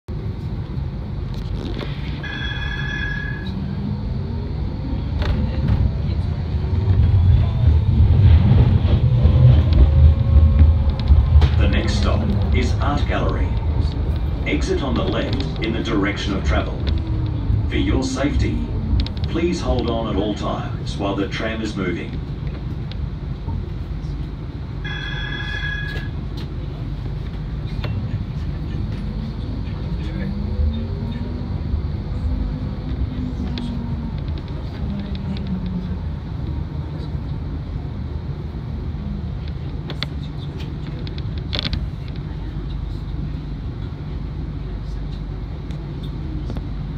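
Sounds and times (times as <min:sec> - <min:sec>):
tram rumbling: 0:00.1 - 0:46.9
tram motor whine rising: 0:00.2 - 0:39.9
high-pitched tone: 0:02.2 - 0:03.8.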